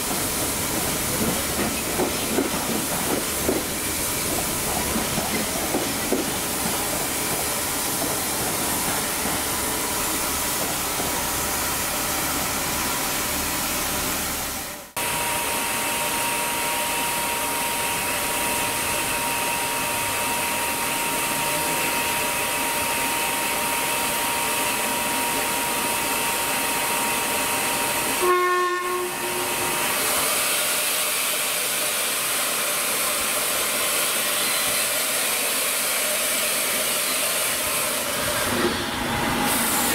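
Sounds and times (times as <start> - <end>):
train hissing: 0.0 - 39.9.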